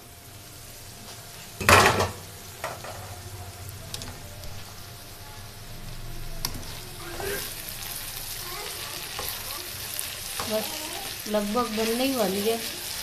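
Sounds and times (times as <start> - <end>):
food sizzling in a pan: 0.0 - 13.0
spatula scraping a pan: 6.4 - 8.0.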